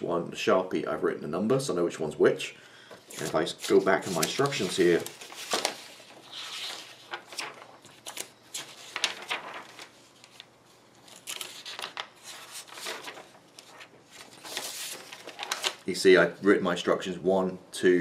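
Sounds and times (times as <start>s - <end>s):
paper pages flipping: 3.0s - 15.9s.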